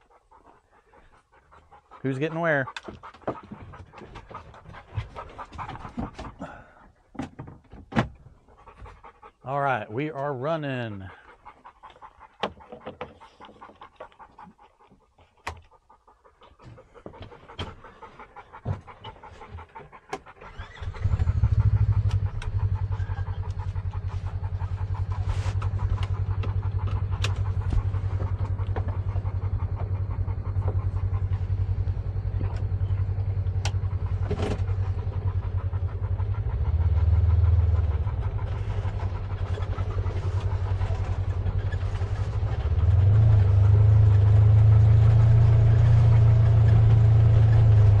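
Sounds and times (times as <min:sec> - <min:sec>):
utility vehicle engine running: 0:20.2 - 0:48.0.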